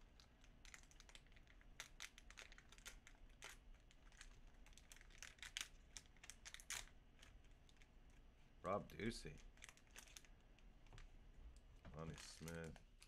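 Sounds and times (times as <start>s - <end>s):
faint crinkling: 0.0s - 13.0s.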